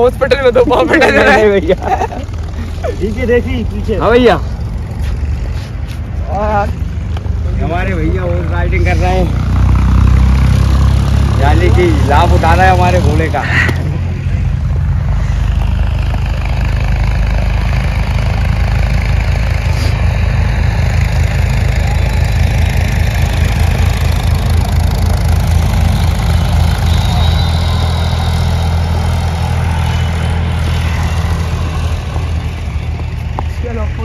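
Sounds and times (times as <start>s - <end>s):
engine idling: 11.4s - 34.0s.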